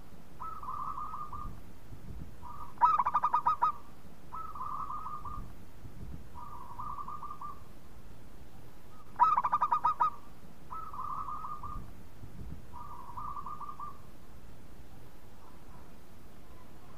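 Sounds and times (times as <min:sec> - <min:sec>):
dove cooing: 0:00.4 - 0:01.6, 0:02.4 - 0:05.5, 0:06.4 - 0:07.7, 0:08.9 - 0:11.9, 0:12.7 - 0:14.1.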